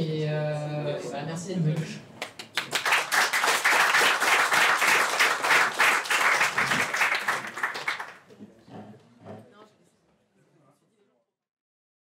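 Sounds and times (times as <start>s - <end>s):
audience applauding: 2.2s - 8.2s.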